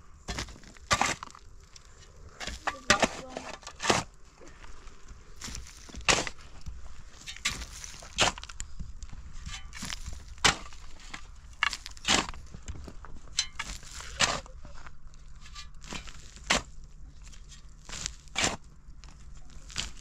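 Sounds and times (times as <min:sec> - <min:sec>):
hand tool striking: 0:13.3 - 0:14.5.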